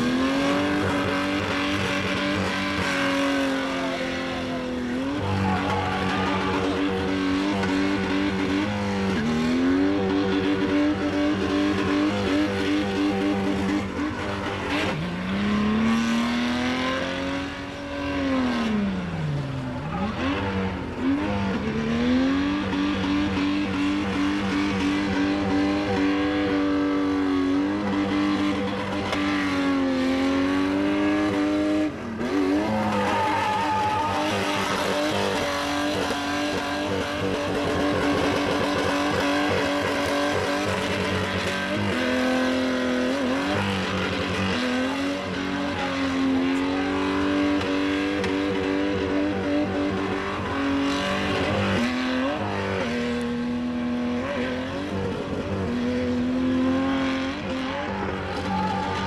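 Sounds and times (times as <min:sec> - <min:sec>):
car engine at high revs: 0:00.0 - 0:59.0
tyres spinning and squealing: 0:03.0 - 0:10.4, 0:32.5 - 0:40.3.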